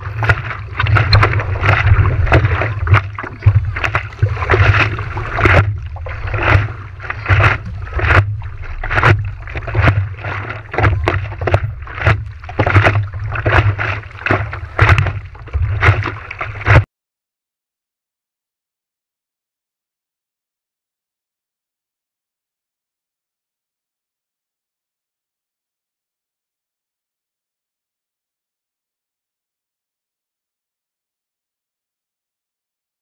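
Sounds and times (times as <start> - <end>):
wind rumble on microphone: 0.0 - 16.8
water splashing against board: 0.0 - 16.9.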